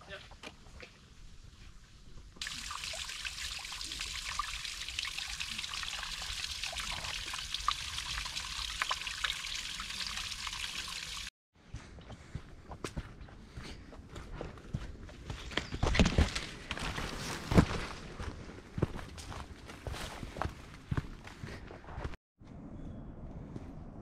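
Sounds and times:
water trickling in stream: 2.4 - 11.3.

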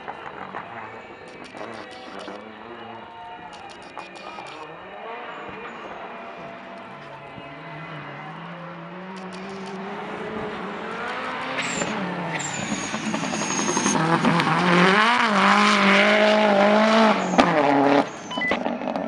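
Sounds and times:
race car engine at high revs: 4.6 - 19.0.

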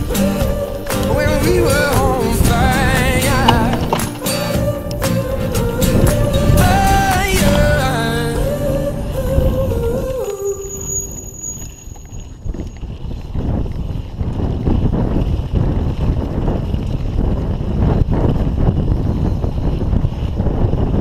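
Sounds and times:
song music: 0.0 - 10.8
wind buffeting microphone: 0.0 - 10.9, 12.3 - 21.0.

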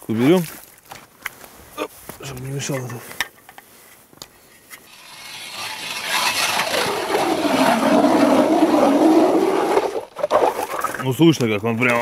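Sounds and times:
hand ice auger cutting ice: 4.9 - 11.1.

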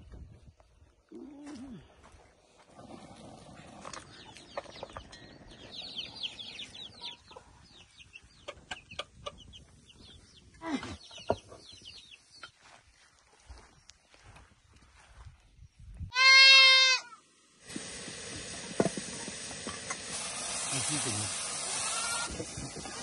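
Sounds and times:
birds chirping: 0.7 - 16.1.

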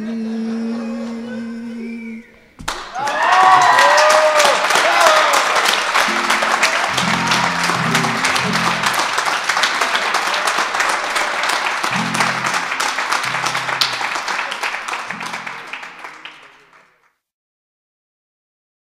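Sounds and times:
audience applauding: 2.6 - 17.1
crowd cheering: 2.6 - 17.1
low instrument notes: 5.9 - 16.6.

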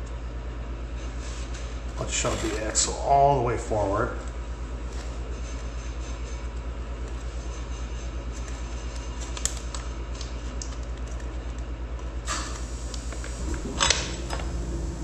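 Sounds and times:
machine humming: 12.3 - 15.0.

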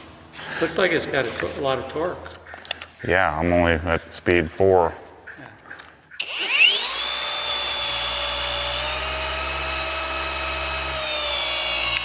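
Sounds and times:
polisher whining: 6.2 - 12.0.

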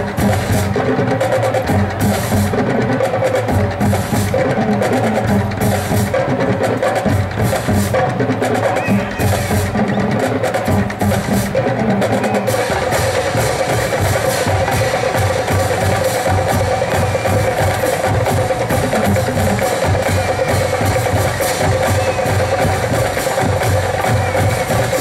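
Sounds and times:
snare and tenor drums: 0.0 - 25.0.

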